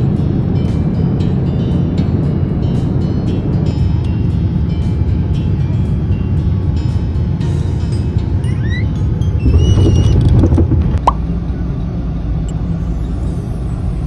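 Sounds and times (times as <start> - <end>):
road noise inside moving car: 0.0 - 14.0
low rumble inside airliner cabin: 8.0 - 13.2.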